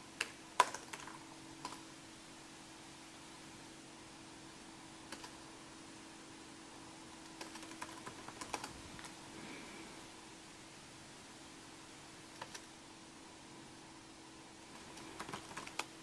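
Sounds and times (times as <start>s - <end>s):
faint steady hum: 0.0s - 16.0s
laptop keyboard typing: 0.2s - 1.8s, 5.1s - 5.4s, 7.1s - 9.2s, 12.3s - 12.7s, 14.7s - 16.0s.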